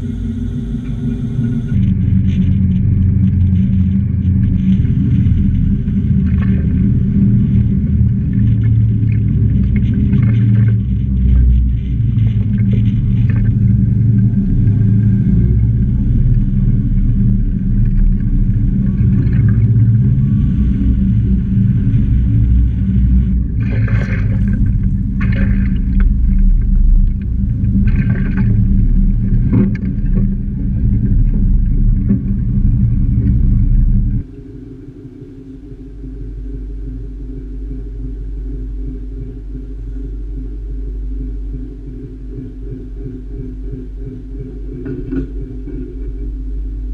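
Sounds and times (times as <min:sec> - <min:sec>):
tractor engine running: 0:00.0 - 0:06.6
steady hum: 0:00.0 - 0:46.9.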